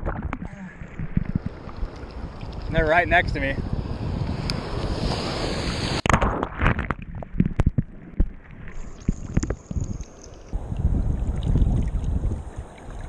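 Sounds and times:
wind on microphone: 0.0s - 13.0s
sea water sloshing and splashing: 11.1s - 13.0s.

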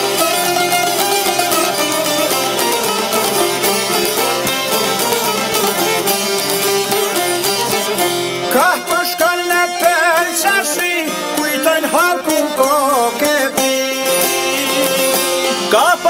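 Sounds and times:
folk ensemble playing: 0.0s - 16.0s
person singing: 8.5s - 16.0s.

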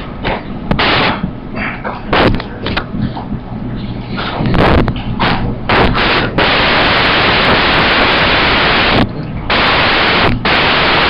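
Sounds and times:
static hiss: 0.0s - 1.4s, 2.1s - 2.4s, 4.2s - 11.0s.

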